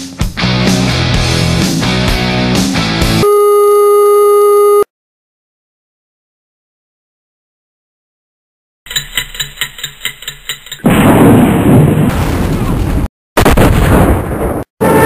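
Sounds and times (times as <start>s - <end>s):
explosion with long rumble: 10.9s - 15.0s.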